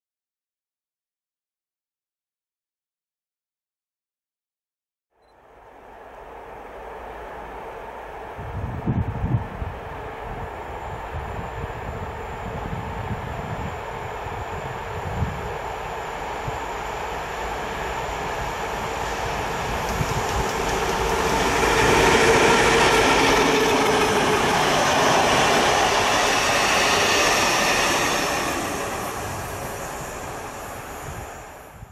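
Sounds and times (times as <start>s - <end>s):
diesel locomotive engine: 5.4s - 31.9s
rolling train cars: 5.4s - 31.9s
track machine passing: 16.2s - 31.6s.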